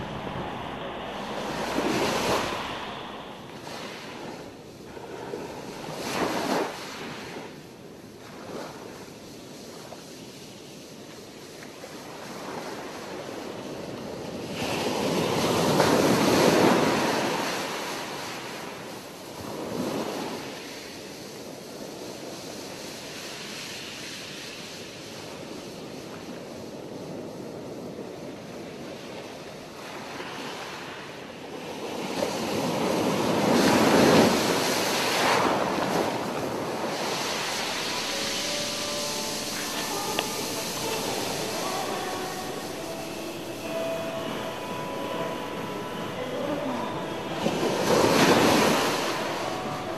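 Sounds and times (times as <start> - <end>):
wind rushing over microphone: 0.0 - 6.8
sea surf breaking: 0.0 - 7.3, 31.7 - 49.9.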